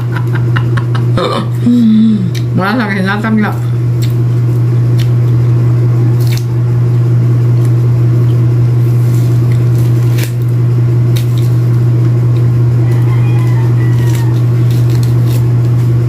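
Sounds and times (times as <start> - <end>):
loud steady low hum: 0.0 - 16.0
fruit pulp squishing: 3.3 - 16.0.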